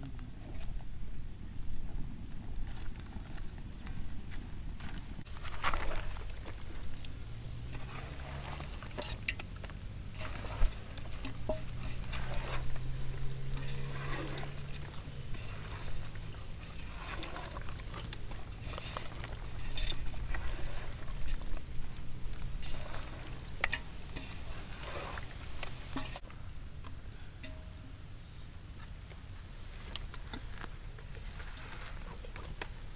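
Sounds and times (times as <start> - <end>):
wet squelching in metal bowl: 5.4 - 26.2.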